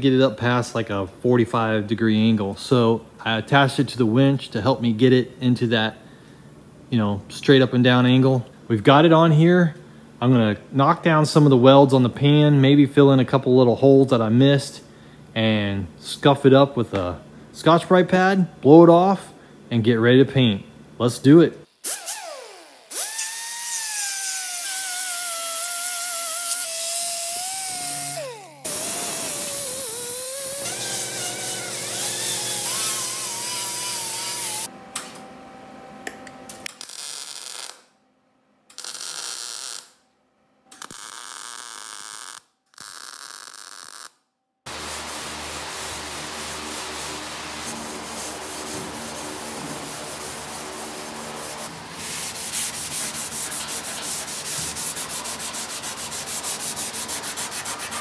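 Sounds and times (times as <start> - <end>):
rotary grinder grinding metal: 23.0 - 34.7
scouring pad rubbing metal: 27.4 - 34.7, 44.7 - 58.0
welder crackling: 36.5 - 37.9, 38.7 - 40.0, 40.7 - 44.2.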